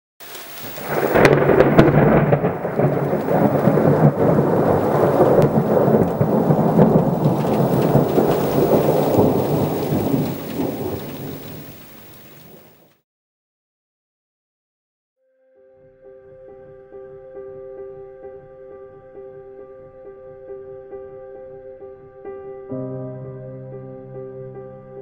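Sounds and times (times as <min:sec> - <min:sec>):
rain: 0:00.2 - 0:13.0
thunder rumbling: 0:00.2 - 0:13.0.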